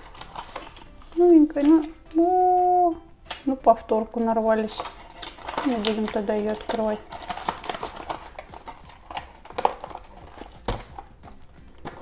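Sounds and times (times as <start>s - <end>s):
cardboard boxes handled: 4.2s - 12.0s.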